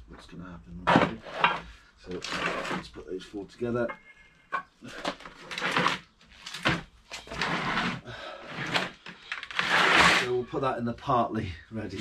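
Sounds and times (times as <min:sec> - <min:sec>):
metal discs clunking and scraping: 0:00.8 - 0:02.9, 0:03.7 - 0:05.4.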